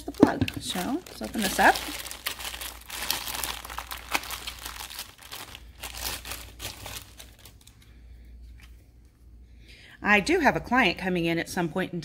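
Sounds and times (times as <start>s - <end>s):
packaging crinkling: 0.0s - 7.9s.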